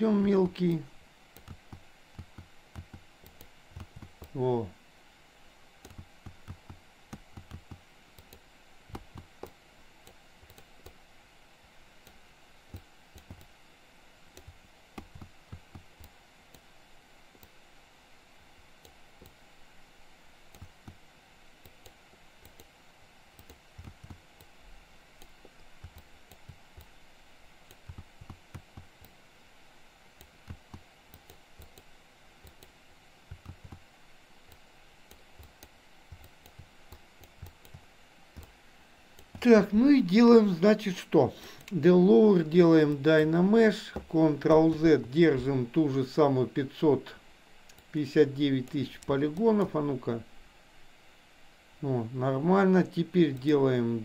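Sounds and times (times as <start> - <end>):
faint steady hiss: 0.0 - 54.0
mouse and keyboard clicks: 1.4 - 4.4, 5.8 - 11.0, 12.0 - 13.5, 14.4 - 16.7, 23.4 - 24.5, 27.7 - 29.2, 30.2 - 31.9, 32.5 - 33.8, 34.5 - 38.6.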